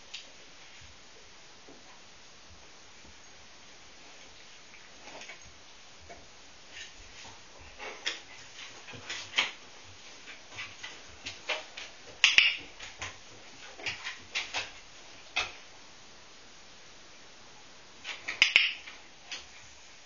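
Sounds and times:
dog claws clicking on wooden floor: 0:10.2 - 0:15.6.

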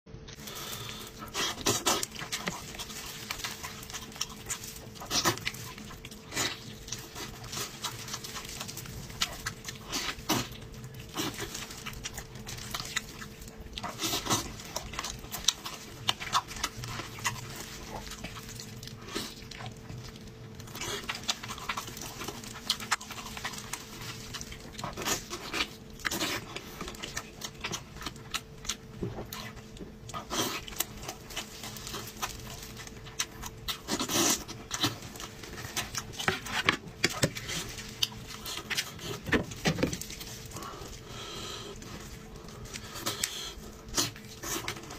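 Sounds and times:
plastic gloves rustling: 0:00.4 - 0:44.9.

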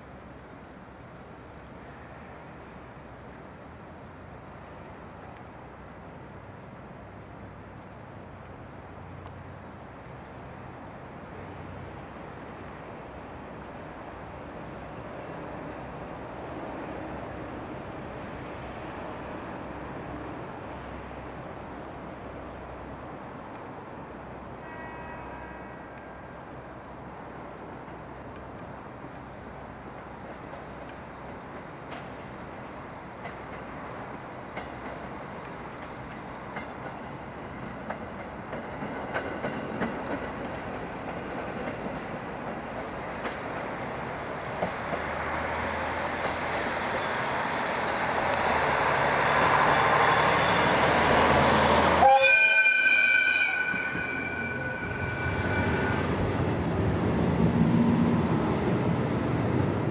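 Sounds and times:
diesel railcar engine: 0:00.0 - 0:59.9
train horn blast: 0:24.6 - 0:26.2, 0:51.8 - 0:56.2.

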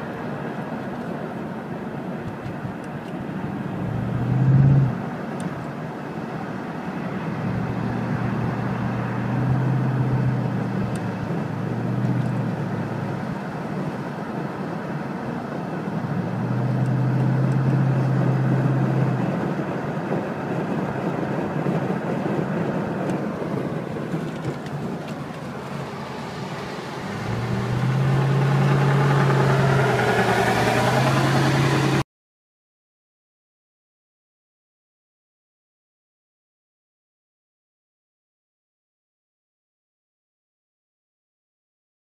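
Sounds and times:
car engine droning: 0:00.0 - 0:32.0
road noise: 0:00.0 - 0:32.0.

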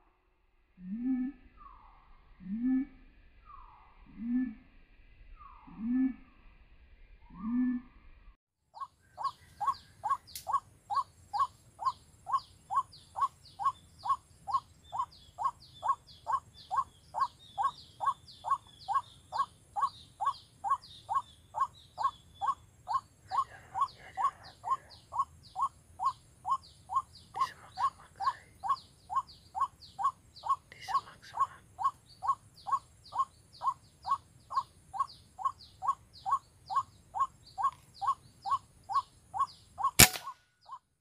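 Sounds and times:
waterhen calling: 0:08.8 - 0:40.3.

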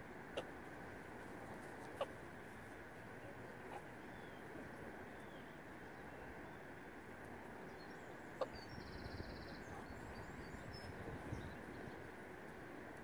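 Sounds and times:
steady outdoor background noise: 0:00.0 - 0:13.0
small birds chirping: 0:07.6 - 0:12.6.

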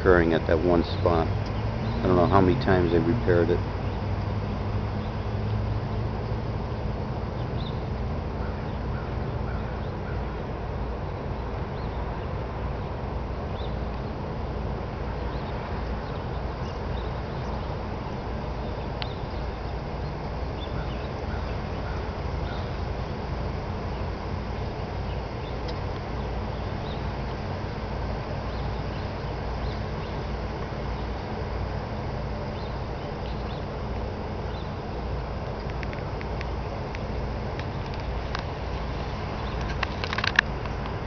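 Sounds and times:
low outdoor rumble: 0:00.0 - 0:41.0
faint bird chirps: 0:15.2 - 0:22.8.

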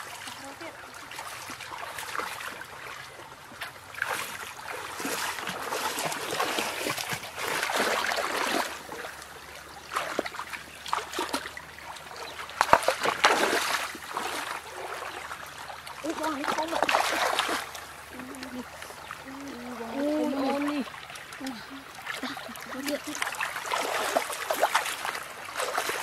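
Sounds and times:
bare feet splashing through stream: 0:00.0 - 0:26.0
stream trickling: 0:00.0 - 0:26.0.

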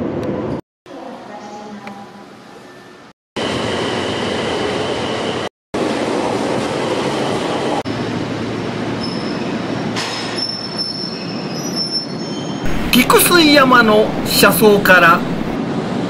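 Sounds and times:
high wheel squeal: 0:09.0 - 0:12.8
train rail noise: 0:12.6 - 0:16.0.

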